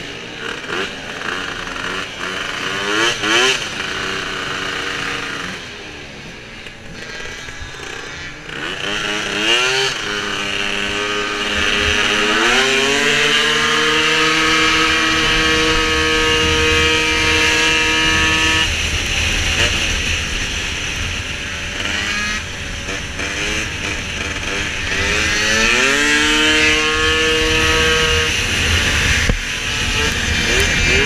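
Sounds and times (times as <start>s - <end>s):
scooter engine revving: 0.0s - 31.0s.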